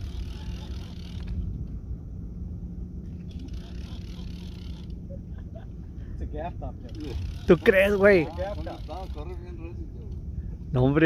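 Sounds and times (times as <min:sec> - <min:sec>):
fishing reel whirring: 0:00.0 - 0:01.7, 0:03.0 - 0:05.6, 0:06.6 - 0:10.3
low steady hum: 0:00.0 - 0:11.0
wind rumble: 0:00.0 - 0:11.0.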